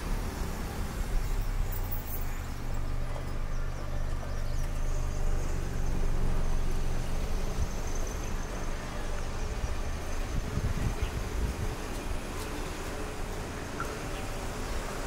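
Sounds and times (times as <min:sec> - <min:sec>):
engine idling: 0:00.0 - 0:15.0.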